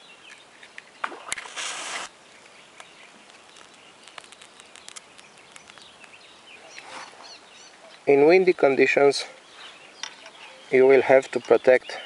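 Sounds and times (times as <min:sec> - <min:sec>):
match head scraping hiss: 0:01.4 - 0:02.1.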